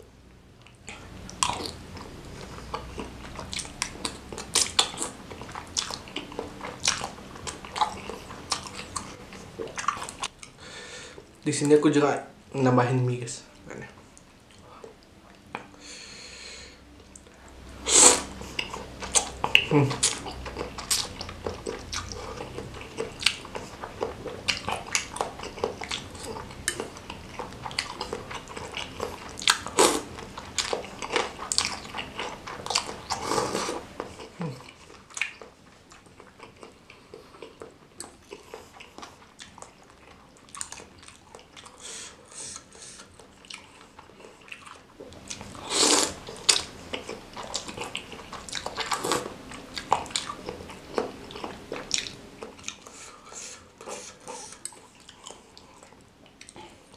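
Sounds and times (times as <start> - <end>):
chewing: 0.6 - 11.4, 18.0 - 56.9
noodles slurped: 45.4 - 46.7.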